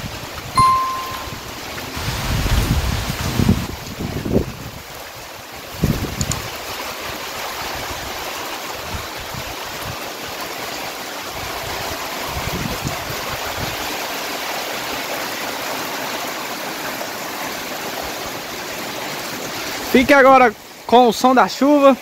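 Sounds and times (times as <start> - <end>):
heavy rain pouring: 1.4 - 21.6.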